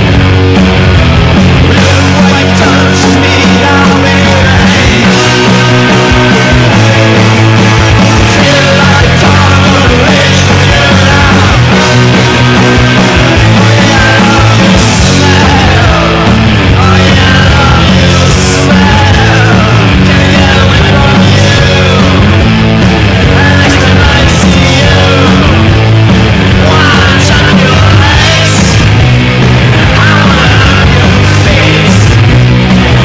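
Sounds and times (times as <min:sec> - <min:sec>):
garage punk rock band: 0:00.0 - 0:33.0.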